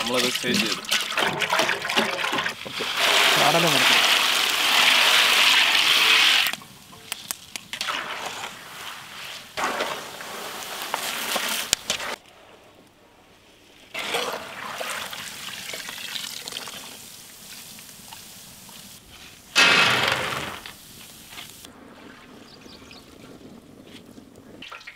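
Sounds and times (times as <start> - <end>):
peanuts sizzling in hot oil: 2.6 - 12.2, 14.0 - 19.6.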